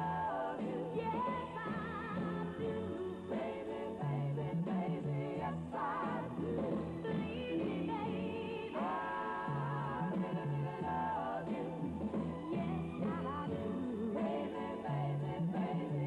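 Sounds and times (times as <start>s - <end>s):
pop song woman singing: 0.0s - 11.9s, 12.5s - 16.0s
bass line: 9.3s - 16.0s.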